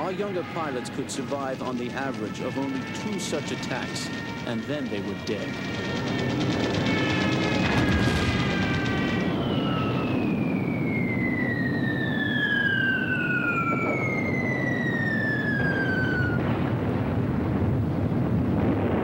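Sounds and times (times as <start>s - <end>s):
steady low rumble: 0.0s - 11.7s
falling bomb whistles: 6.7s - 16.5s.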